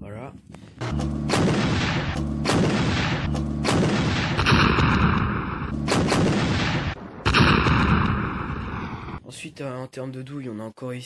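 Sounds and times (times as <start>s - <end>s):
artillery shots with rumbling echo: 0.9s - 9.2s.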